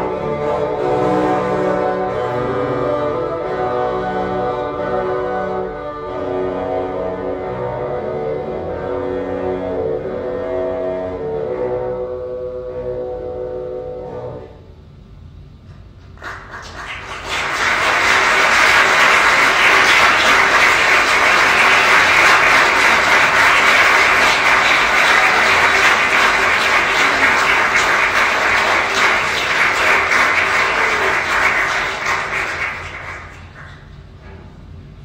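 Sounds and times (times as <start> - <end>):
audience applauding: 16.2 - 34.0.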